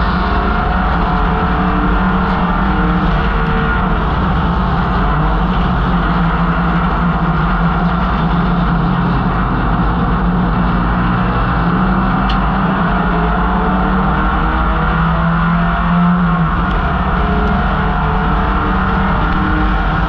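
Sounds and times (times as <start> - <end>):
race car engine running hard: 0.0 - 20.0
wind and road noise: 0.0 - 20.0.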